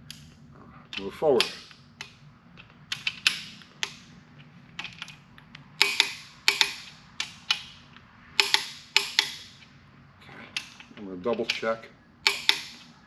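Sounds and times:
torque wrench clicking: 0:05.8 - 0:07.8, 0:08.4 - 0:09.7, 0:10.6 - 0:13.0.

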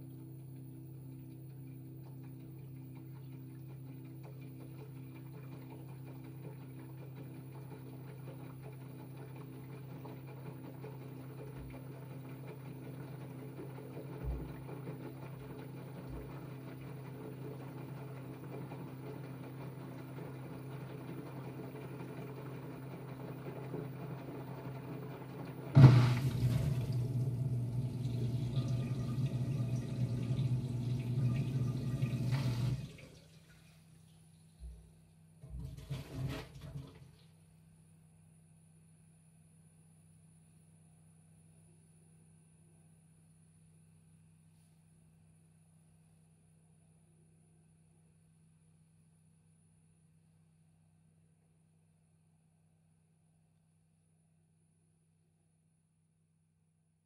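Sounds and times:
washing machine filling with water: 0:00.0 - 0:34.8, 0:35.4 - 0:37.3.

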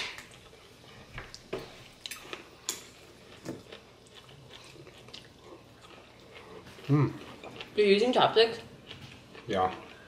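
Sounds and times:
people chewing: 0:00.0 - 0:10.0
cutlery clicking on ceramic bowl: 0:02.1 - 0:02.9.

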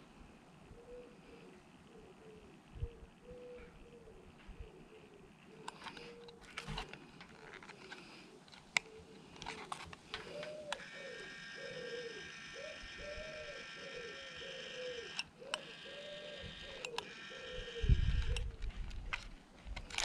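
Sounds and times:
sharp clicks: 0:07.6 - 0:20.0
small electric motor whining: 0:09.4 - 0:20.0.

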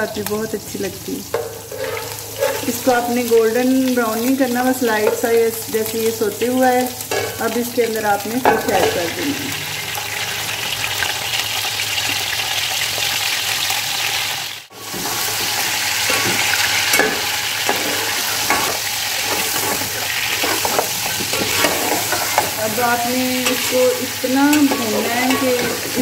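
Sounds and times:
fish frying in hot oil: 0:00.0 - 0:26.0
spoon scraping metal pot: 0:01.3 - 0:03.0, 0:14.9 - 0:26.0.

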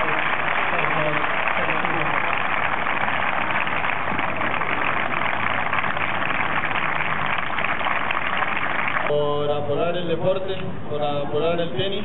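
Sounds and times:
crowd applauding: 0:00.0 - 0:09.1.

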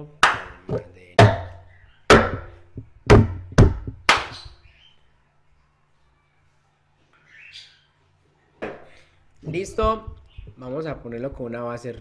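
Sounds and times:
hand strikes on tabletop and cup: 0:00.2 - 0:04.6.

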